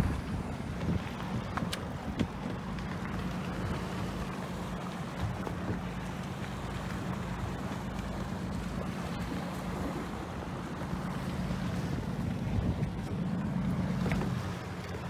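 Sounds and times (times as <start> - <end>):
water around boat: 0.0 - 15.0
wind: 0.0 - 15.0.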